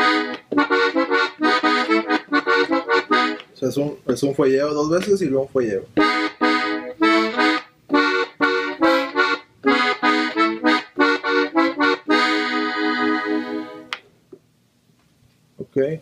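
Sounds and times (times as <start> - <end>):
button accordion chords: 0.0 - 3.5, 6.0 - 14.0.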